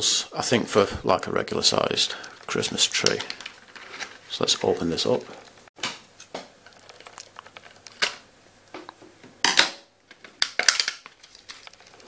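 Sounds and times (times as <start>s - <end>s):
plastic box crackling: 6.5s - 8.3s, 10.2s - 12.0s.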